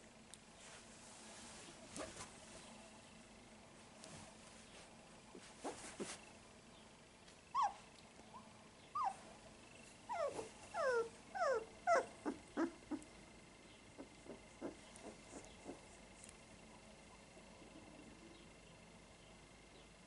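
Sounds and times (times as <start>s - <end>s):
puppies whimpering: 7.5s - 7.8s, 10.1s - 13.0s, 14.0s - 15.8s.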